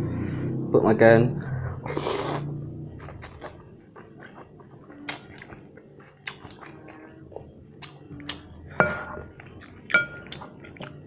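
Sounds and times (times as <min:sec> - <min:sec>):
chewing and slurping noodles: 0:01.8 - 0:08.5, 0:09.3 - 0:11.0.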